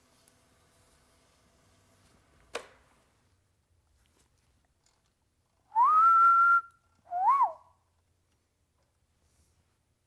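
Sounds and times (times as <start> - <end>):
person wolf whistling: 5.7 - 7.8.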